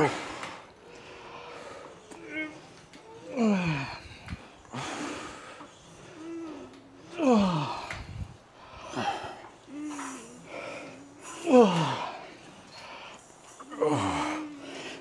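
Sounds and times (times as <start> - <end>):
hard breathing: 0.0 - 15.0
person grunting: 3.2 - 4.2, 6.3 - 8.2, 8.9 - 12.2, 13.7 - 15.0.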